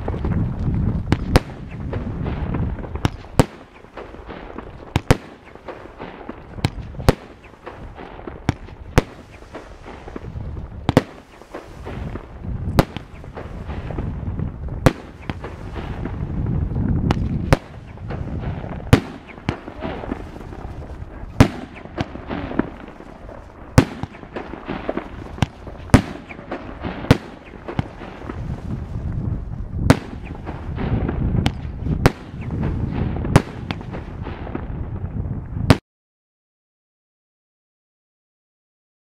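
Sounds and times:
rumble: 0.0s - 3.4s, 11.7s - 35.7s
firework bangs: 0.0s - 35.8s
firework crackling: 0.0s - 35.8s.

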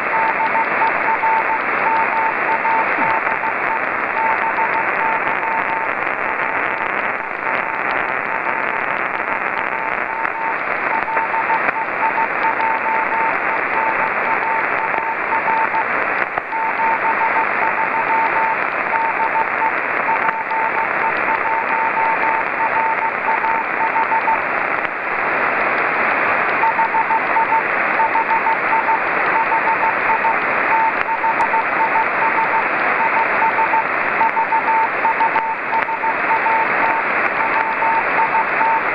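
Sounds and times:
radio receiver hiss: 0.0s - 38.9s
morse code beeping tone: 0.1s - 3.6s, 10.1s - 15.8s, 16.5s - 24.4s, 26.6s - 38.8s.

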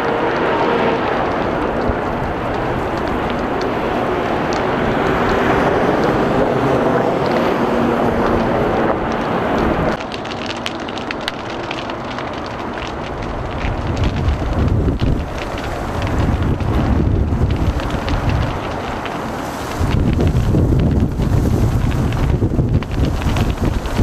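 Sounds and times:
trucks rolling past: 0.0s - 10.0s
burning brush crackling: 0.0s - 24.0s
fire hose spraying: 0.0s - 24.0s
freeway traffic rumble: 0.0s - 24.0s.

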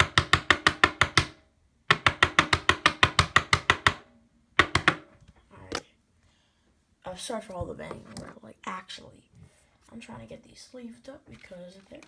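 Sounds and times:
rapid banging on tabletop: 0.0s - 5.3s.

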